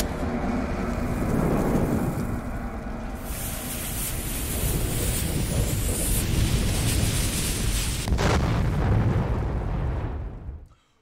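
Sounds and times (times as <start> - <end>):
low fire rumble: 0.0 - 10.7
burning fuse hiss: 3.2 - 8.3.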